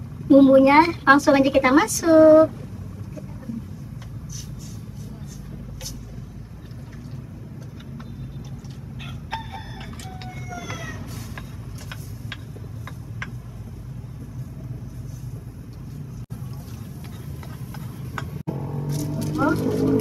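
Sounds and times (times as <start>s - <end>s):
rooster crowing: 9.0s - 11.2s.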